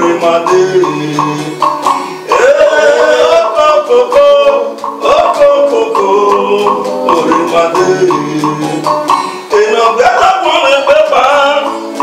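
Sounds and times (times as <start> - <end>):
electric guitar: 0.0 - 12.0
man singing into a microphone: 0.0 - 12.0
steady percussive beat: 0.0 - 12.0.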